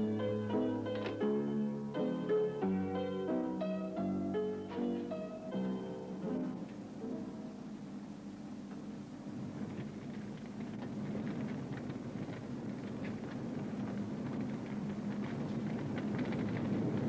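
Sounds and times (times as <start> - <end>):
music: 0.0 - 8.8
gas burning roar with crackling: 0.0 - 17.0.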